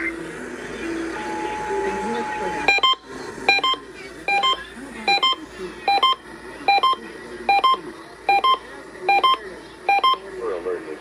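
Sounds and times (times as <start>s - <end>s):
electronic alert beeps: 1.2s - 10.2s.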